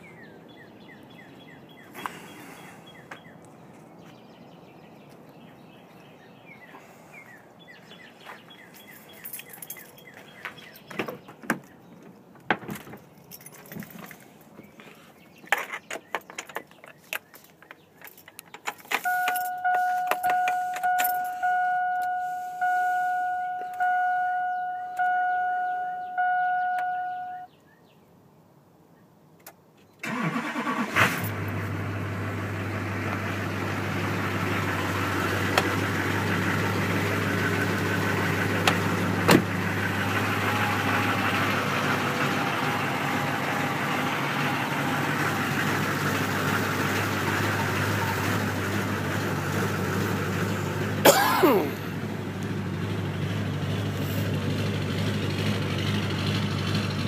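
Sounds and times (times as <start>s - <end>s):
keys clicking and rattling: 8.8s - 10.2s, 13.0s - 14.4s, 15.6s - 21.4s
diesel engine cranking and idling: 16.0s - 27.5s, 30.0s - 57.0s
dashboard warning chime: 19.0s - 27.5s.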